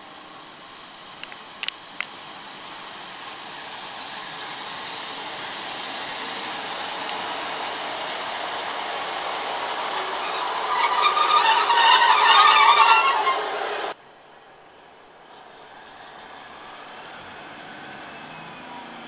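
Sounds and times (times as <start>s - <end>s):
train rolling on rails: 0.0s - 19.0s
metallic brake squeal: 9.7s - 14.0s.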